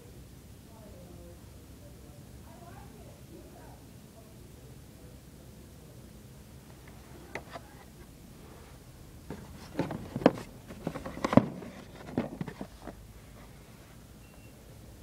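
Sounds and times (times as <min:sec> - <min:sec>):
plastic packs clacking and rustling: 0:09.3 - 0:13.0.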